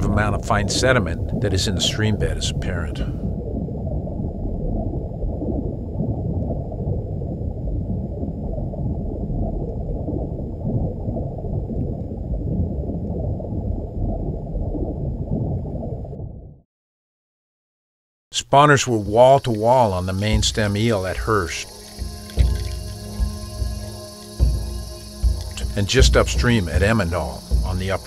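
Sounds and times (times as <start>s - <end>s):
underwater stream rumble: 0.0s - 16.6s, 19.4s - 28.0s.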